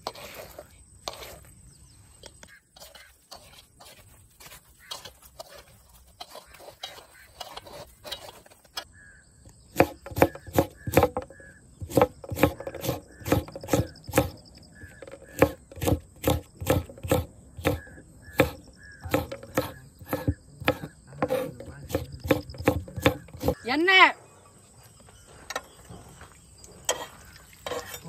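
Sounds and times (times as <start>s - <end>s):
knife chopping on wooden board: 9.8s - 14.4s, 15.0s - 23.6s.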